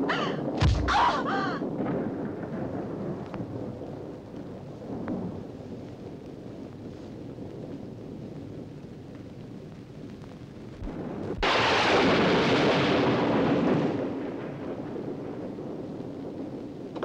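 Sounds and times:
thunderclap crack: 0:00.0 - 0:05.4, 0:10.8 - 0:17.0
rolling thunder rumble: 0:00.0 - 0:17.0.

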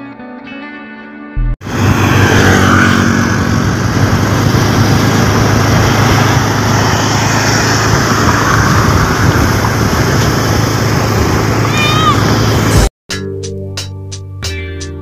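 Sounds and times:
engine humming: 0:01.6 - 0:12.9
road and wind noise: 0:01.6 - 0:12.9.

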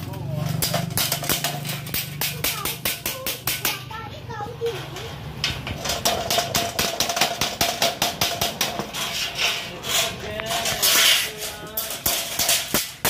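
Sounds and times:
metallic clicks and knocks: 0:04.6 - 0:09.0
metal rasp: 0:06.0 - 0:13.0.

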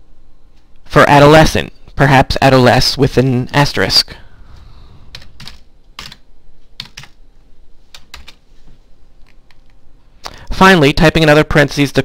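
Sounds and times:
keyboard keystrokes: 0:05.1 - 0:06.2, 0:06.8 - 0:07.2, 0:07.9 - 0:08.4.

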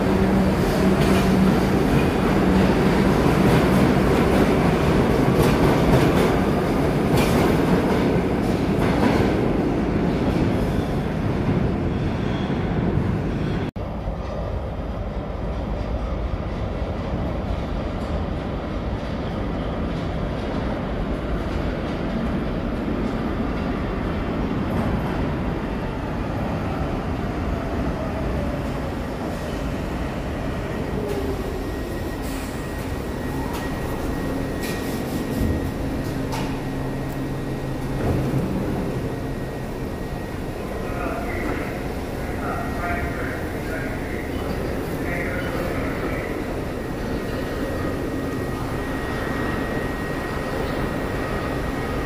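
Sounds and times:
subway train wheels rumbling on rail: 0:00.0 - 0:52.0
steady high tone: 0:31.5 - 0:52.0.

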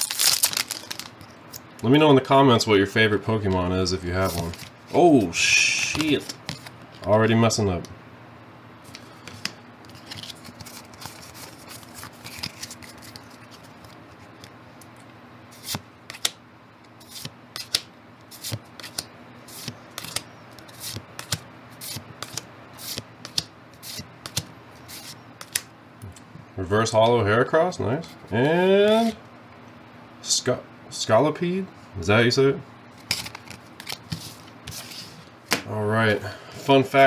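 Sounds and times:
trading cards flicking: 0:17.0 - 0:25.7.

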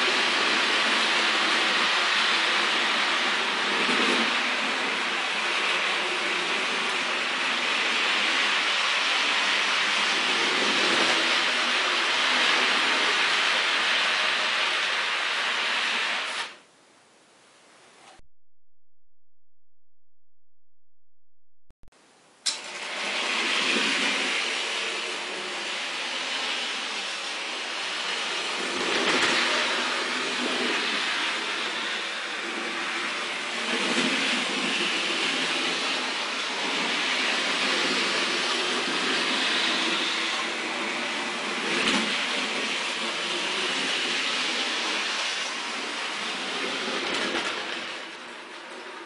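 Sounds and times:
wheels rattling on rails: 0:00.1 - 0:16.0, 0:22.5 - 0:49.0.

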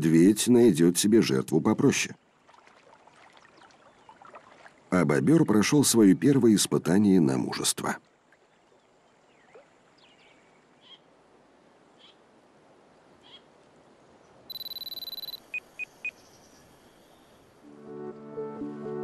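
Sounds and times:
faint bird chirps: 0:08.5 - 0:11.1, 0:13.2 - 0:13.5, 0:14.5 - 0:17.5
digital clock beeps: 0:14.5 - 0:15.9.

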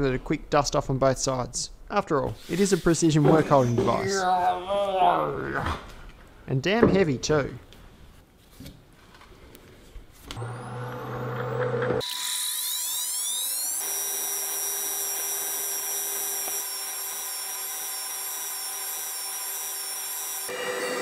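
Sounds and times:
grinder wheel high whine: 0:10.4 - 0:21.0.

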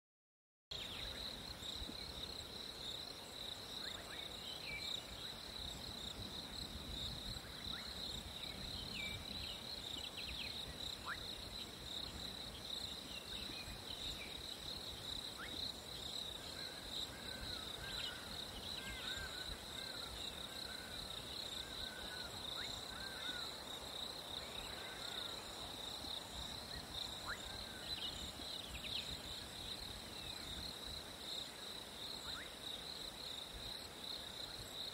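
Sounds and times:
crickets chorus: 0:00.7 - 0:34.9.

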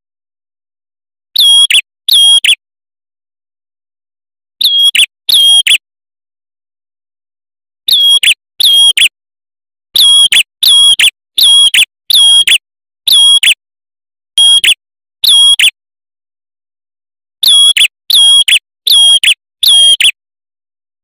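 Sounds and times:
bird whistling song: 0:01.4 - 0:02.6, 0:04.6 - 0:05.8, 0:07.9 - 0:09.2, 0:10.0 - 0:13.6, 0:14.4 - 0:15.8, 0:17.4 - 0:20.2.

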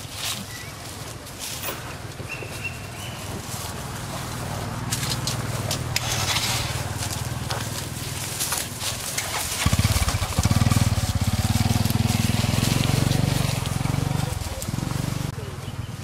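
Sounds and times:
dry leaves crackling underfoot: 0:00.0 - 0:15.5
small engine running: 0:09.0 - 0:15.3.

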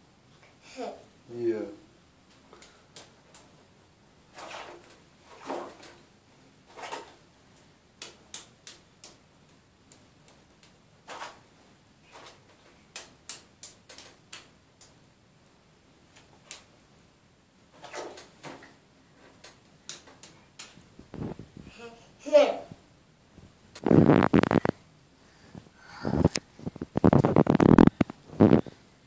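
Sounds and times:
bath water swishing: 0:04.3 - 0:06.1, 0:06.7 - 0:07.2, 0:17.7 - 0:18.6
child clapping wet hands: 0:12.9 - 0:14.9.

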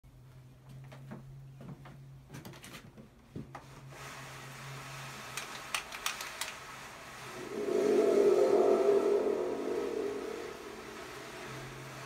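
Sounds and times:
faint hiss: 0:06.9 - 0:12.0
thunder tube low rumble: 0:07.3 - 0:12.0.

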